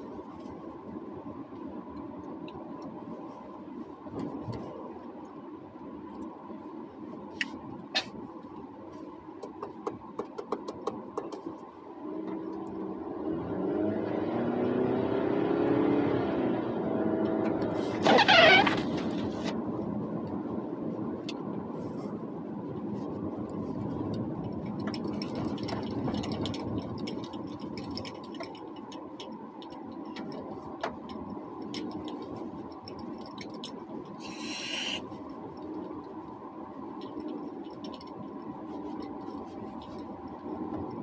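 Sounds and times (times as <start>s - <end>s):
in-cabin car drone: 0.0s - 41.0s
brief hiss: 34.2s - 35.0s.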